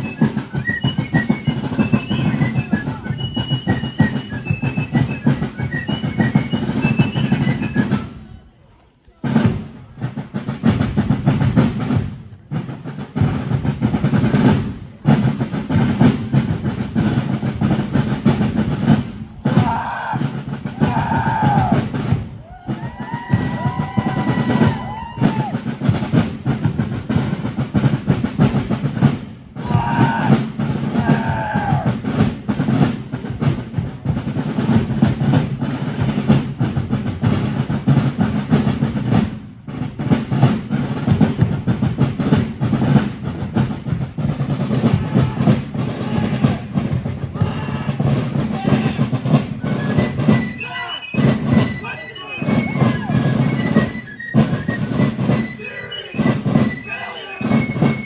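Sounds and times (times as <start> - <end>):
snare and bass drums marching: 0.0 - 58.0
sliding high tones: 49.6 - 58.0.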